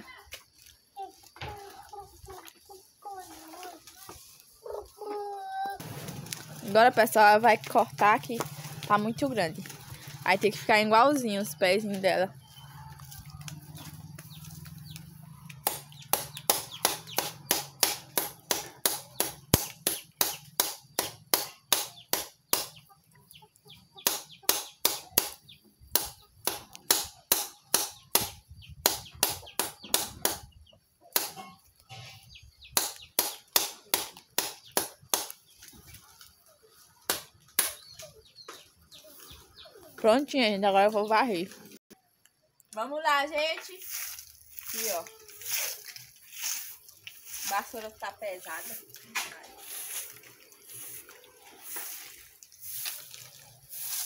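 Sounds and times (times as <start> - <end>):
machete chopping twigs on log: 15.5 - 22.8, 24.0 - 30.5, 31.1 - 31.4, 32.7 - 35.7, 37.0 - 37.8.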